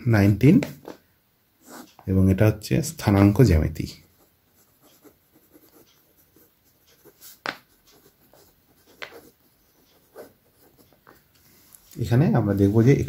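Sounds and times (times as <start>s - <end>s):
pen scratching on paper: 1.6s - 2.0s, 4.0s - 11.2s.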